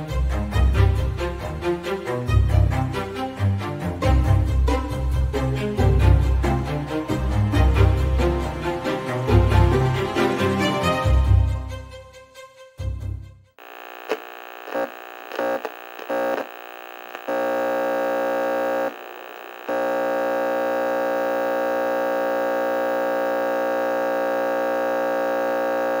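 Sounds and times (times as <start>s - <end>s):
electronic glitch buzzing: 13.6s - 26.0s.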